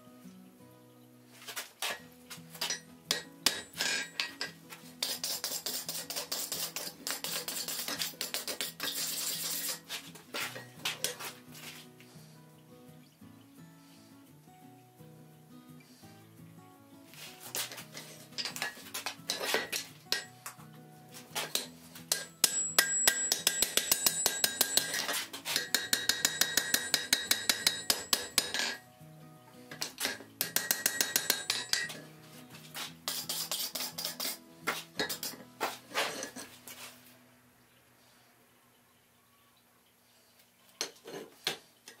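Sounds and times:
soft background music: 0.0s - 41.9s
hammer striking metal on anvil: 2.6s - 4.6s, 21.5s - 28.8s, 29.7s - 32.0s.

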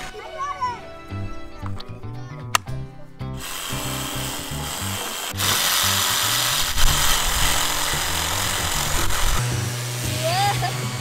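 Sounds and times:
background music: 0.0s - 11.0s
electric sander on wood: 3.4s - 11.0s.

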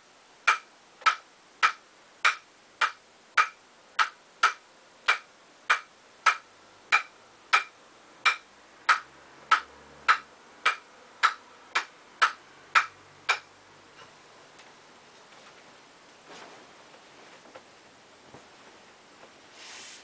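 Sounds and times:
table tennis ball bouncing on wood: 0.5s - 13.5s.

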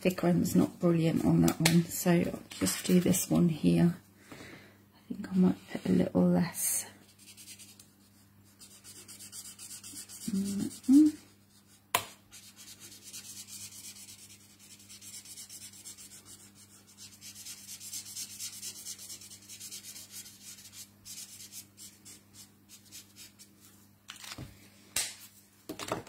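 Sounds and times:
marker rubbing on cardstock: 7.1s - 11.7s, 12.3s - 23.5s.

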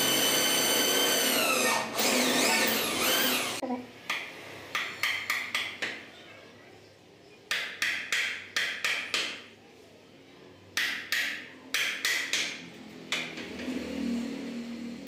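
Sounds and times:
hammer striking chisel: 10.8s - 13.5s.

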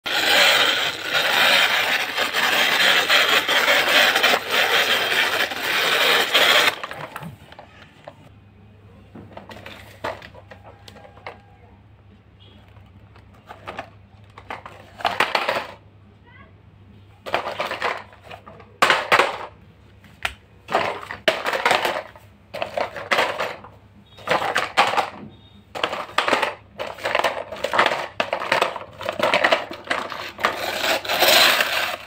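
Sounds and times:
toy truck wheels rolling on tiles: 0.0s - 8.3s, 9.3s - 11.6s, 12.6s - 15.8s, 17.2s - 19.6s, 20.7s - 32.0s.

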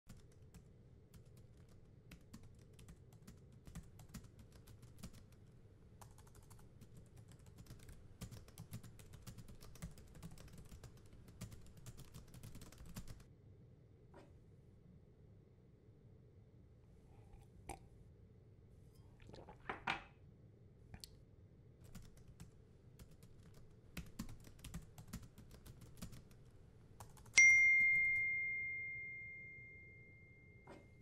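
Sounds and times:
typing on laptop keyboard: 0.1s - 13.3s, 21.8s - 28.3s.

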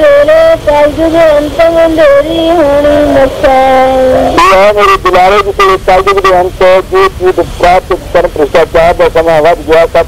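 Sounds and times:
person chanting: 0.0s - 6.9s.

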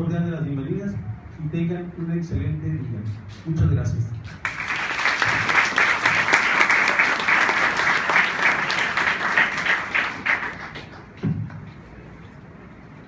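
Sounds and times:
audience applause: 4.4s - 11.2s.

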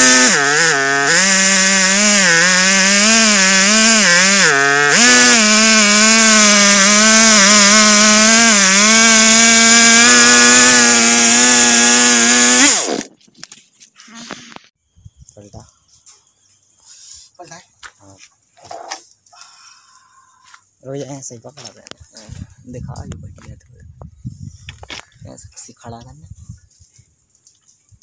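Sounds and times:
chainsaw cutting log: 0.0s - 13.1s.

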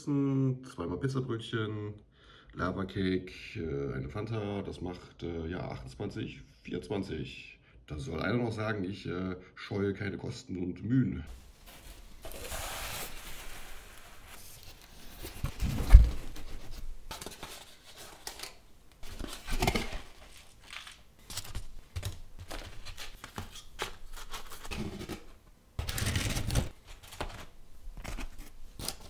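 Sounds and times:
cardboard boxes scraping and rustling: 11.3s - 21.6s, 22.4s - 29.0s.

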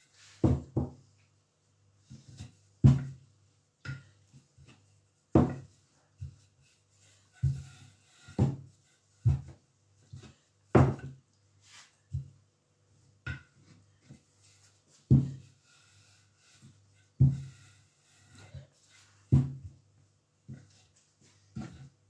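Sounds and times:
rolling pin knocking on wooden board: 0.4s - 1.0s, 2.2s - 3.2s, 5.3s - 6.4s, 10.2s - 11.2s, 13.2s - 14.2s, 15.1s - 15.5s, 17.2s - 17.7s, 19.3s - 19.8s.

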